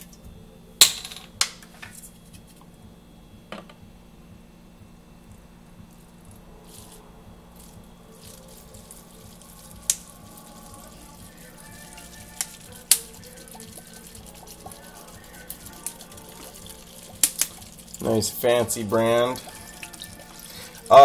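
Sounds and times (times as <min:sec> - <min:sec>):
liquid pouring into bottle: 0:07.6 - 0:21.0.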